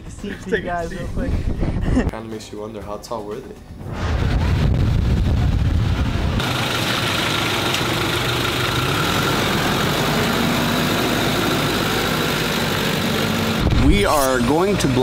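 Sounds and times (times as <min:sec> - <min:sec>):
road noise on dirt road: 0:04.4 - 0:15.0
van engine running: 0:05.5 - 0:15.0.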